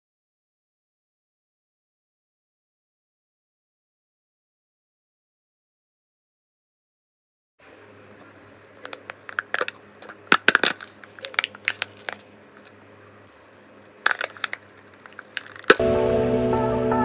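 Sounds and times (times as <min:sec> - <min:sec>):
foil seal crackling and crinkling: 0:08.5 - 0:12.7, 0:14.0 - 0:15.9.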